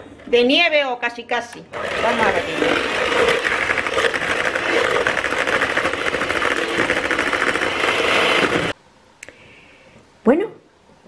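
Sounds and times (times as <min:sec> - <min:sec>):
electric hand mixer whisking: 0:01.7 - 0:08.8.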